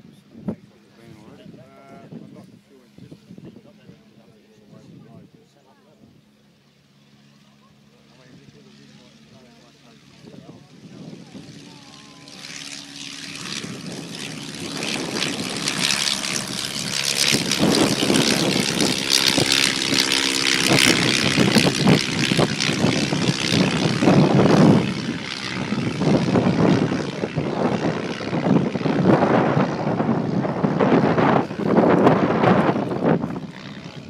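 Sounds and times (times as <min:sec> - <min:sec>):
wind buffeting microphone: 0:00.0 - 0:05.4, 0:10.0 - 0:34.0
biplane engine and propeller: 0:00.0 - 0:34.0.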